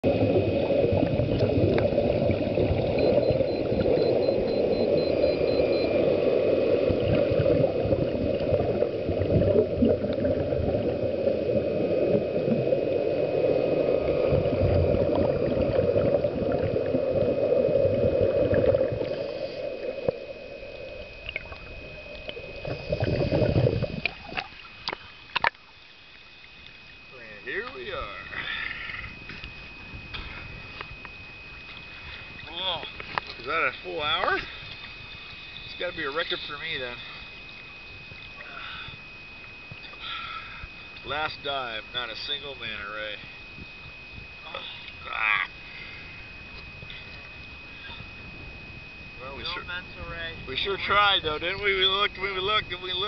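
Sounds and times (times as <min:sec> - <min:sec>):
water splashes: 0:00.0 - 0:27.8
underwater exhaust bubbles: 0:00.0 - 0:53.0.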